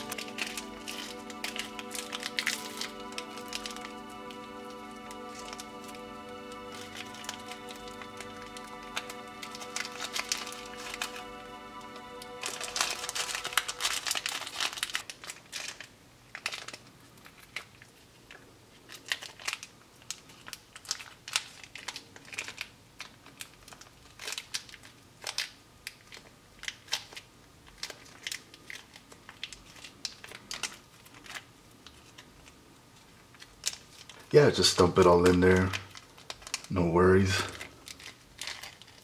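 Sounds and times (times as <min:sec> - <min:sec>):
held musical chord: 0:00.0 - 0:15.1
foil sachets crinkling and tearing: 0:00.0 - 0:39.0.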